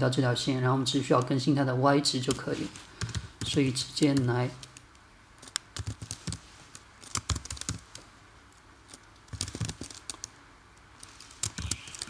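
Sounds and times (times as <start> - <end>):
keyboard typing: 2.2 - 8.1, 8.9 - 10.4, 11.0 - 12.0.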